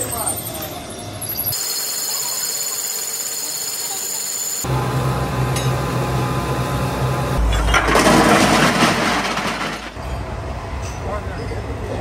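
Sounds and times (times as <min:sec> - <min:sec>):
machinery roaring with deep rumble: 0:04.6 - 0:10.7.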